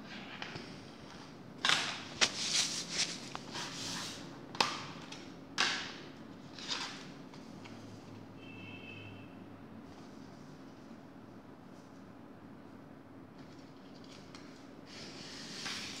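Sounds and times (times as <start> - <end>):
plastic sleeves scraping and rustling: 1.2 - 4.2.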